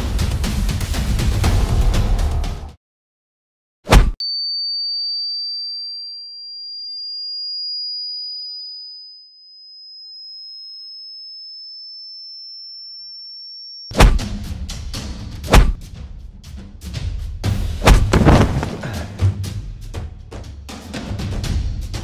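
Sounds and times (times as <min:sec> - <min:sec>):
high ringing tone: 0:04.2 - 0:13.9
loud hit: 0:17.8 - 0:19.2.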